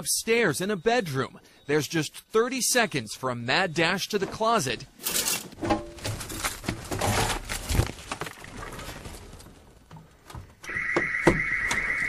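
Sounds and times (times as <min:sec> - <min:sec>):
clothes and wire hangers rattling: 0:04.3 - 0:08.2
security alarm pulsing tone: 0:10.6 - 0:12.0.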